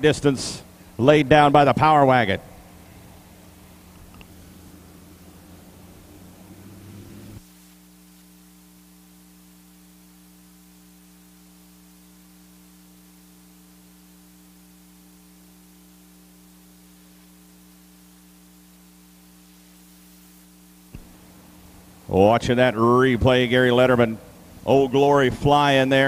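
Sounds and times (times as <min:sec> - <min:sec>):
faint hiss: 0:00.0 - 0:26.0
steady electrical hum: 0:00.0 - 0:26.0
loud sound cutting off: 0:04.3 - 0:07.4.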